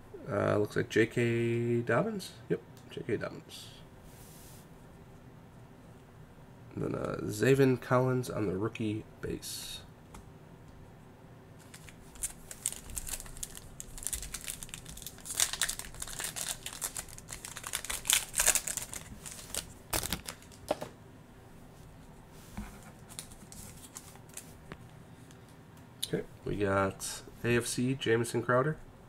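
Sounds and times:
foil pack tearing and crinkling: 11.6 - 20.8.

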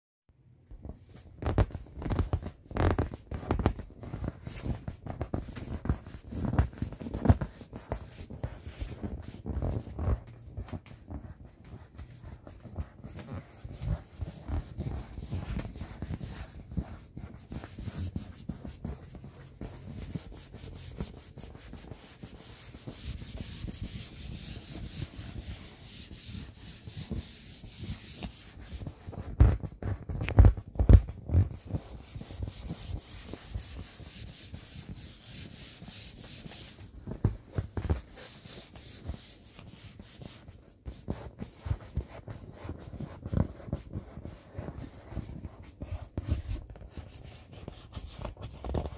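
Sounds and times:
hand rubbing inflated vinyl toy: 0.5 - 48.9.

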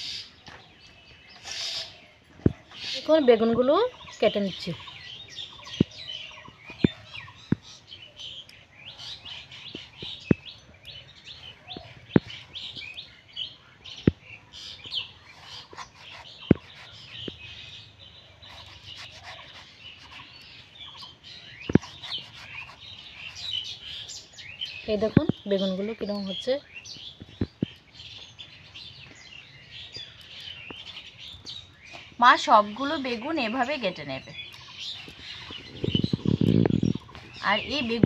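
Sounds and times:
birds chirping: 0.0 - 38.0
blade slicing vegetables: 15.2 - 17.4, 18.4 - 20.5, 21.6 - 23.6.

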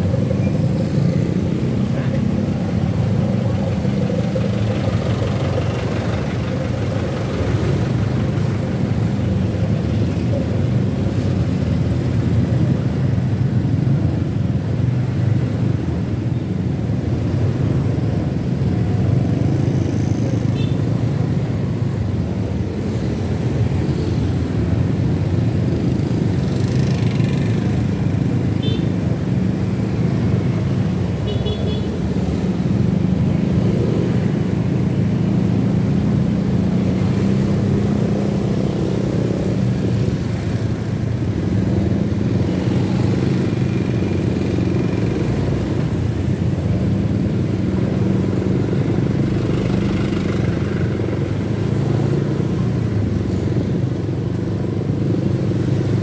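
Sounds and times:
scooter and car engines idling: 3.1 - 9.1.

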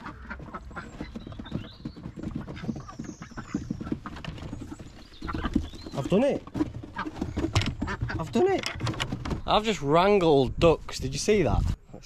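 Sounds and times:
ducks quacking: 0.0 - 1.6, 2.3 - 8.6.

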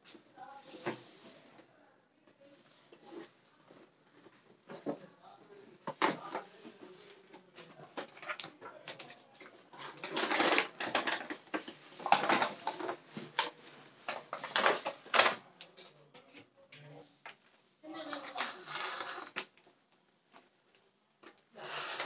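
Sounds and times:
cardboard and plastic crinkling: 6.0 - 15.5.

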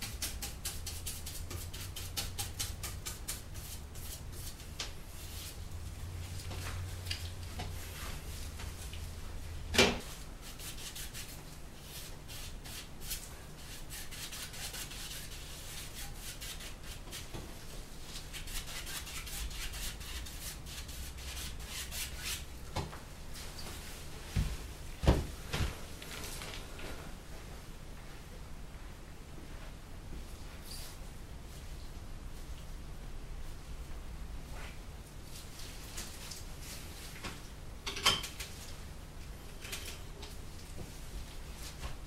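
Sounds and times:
paintbrush scrubbing canvas: 10.1 - 17.3.

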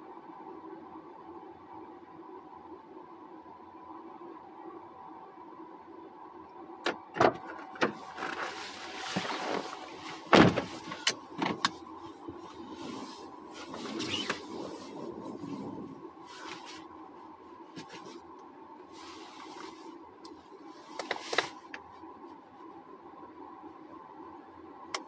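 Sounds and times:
steady car interior hum: 0.0 - 25.0
rustling: 7.9 - 16.9.

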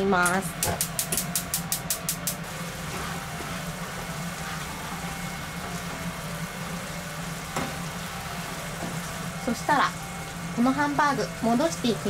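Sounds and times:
sauce bubbling in a frying pan: 2.4 - 12.0.

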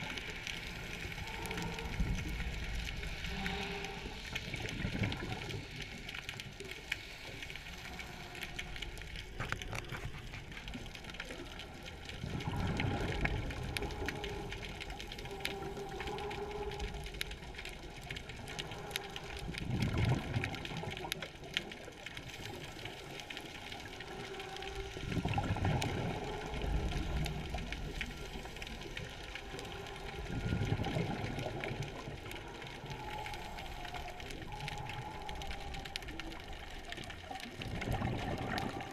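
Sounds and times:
bubbling exhalation: 37.6 - 38.9.

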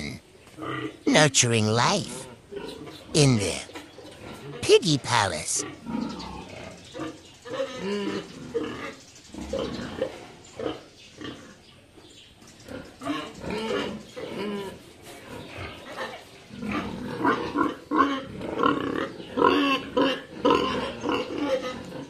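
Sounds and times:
pigs grunting: 0.0 - 1.1, 1.8 - 11.6, 12.6 - 22.0.

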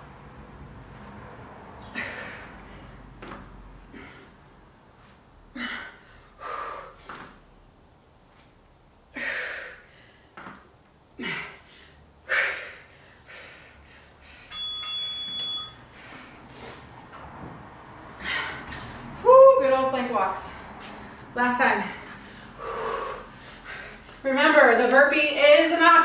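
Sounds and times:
timer chime: 14.5 - 15.9
sharp breathy exhales: 22.0 - 24.0.

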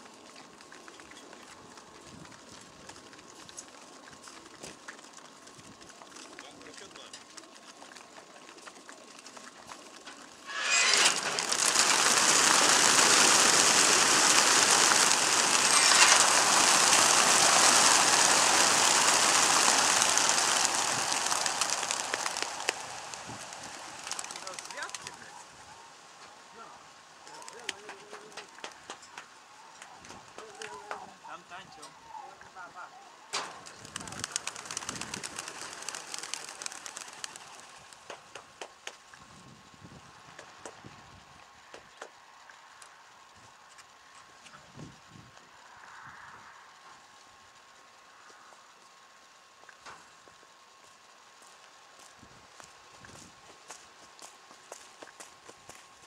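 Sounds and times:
pigeon wingbeats clattering: 0.0 - 25.9, 27.2 - 31.2, 33.4 - 39.2, 49.6 - 56.0.

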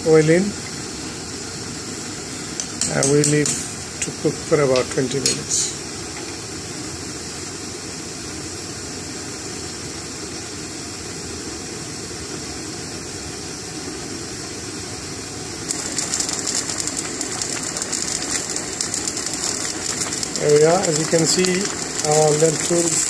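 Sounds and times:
lentils boiling with bubbling: 5.5 - 23.0.

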